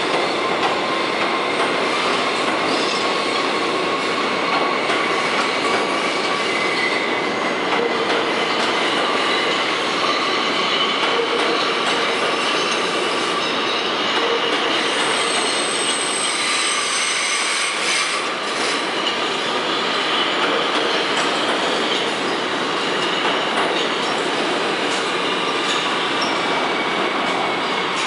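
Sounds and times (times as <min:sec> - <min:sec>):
rail joint clicks: 0:00.0 - 0:03.2, 0:04.0 - 0:28.0
train wheels rumbling on rails: 0:00.0 - 0:28.0
high wheel squeal: 0:04.0 - 0:07.2, 0:12.3 - 0:19.0.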